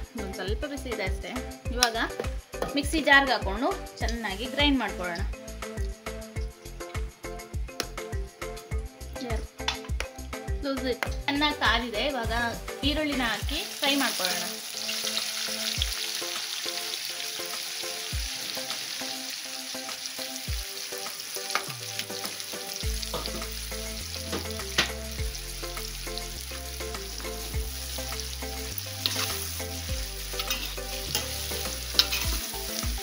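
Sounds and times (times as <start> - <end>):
onions sizzling in oil: 13.1 - 33.0
ladle clinking and scraping pan: 29.0 - 29.4, 30.4 - 32.6.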